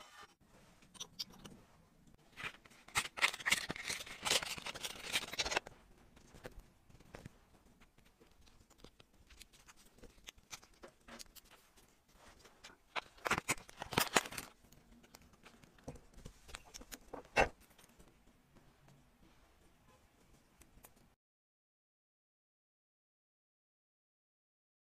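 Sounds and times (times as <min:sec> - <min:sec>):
plastic bag crinkling: 0:02.4 - 0:05.7, 0:12.9 - 0:14.6
clicks and rustles of watch handling: 0:02.4 - 0:11.7.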